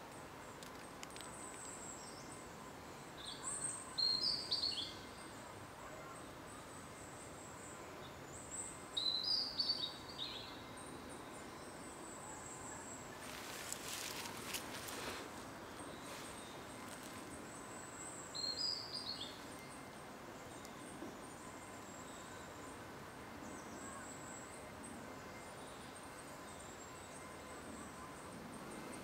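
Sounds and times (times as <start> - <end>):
background hiss: 0.0 - 29.0
songbird chirping: 0.0 - 29.0
rustle with clicks: 0.1 - 1.8.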